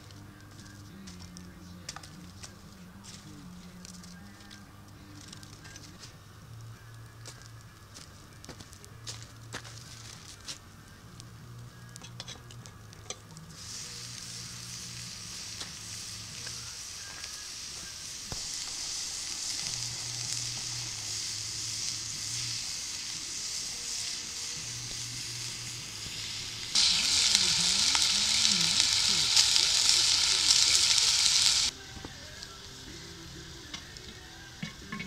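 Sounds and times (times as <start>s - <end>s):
campfire crackling: 0.0s - 35.0s
meatballs sizzling in a pot: 11.3s - 35.0s.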